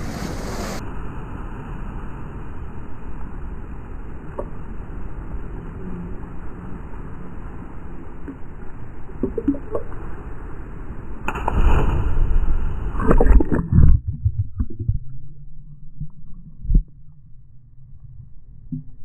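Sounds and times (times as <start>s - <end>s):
muffled underwater rumble: 2.1s - 19.0s
person plunging into water: 11.3s - 16.9s
sea water sloshing and splashing: 11.3s - 17.0s.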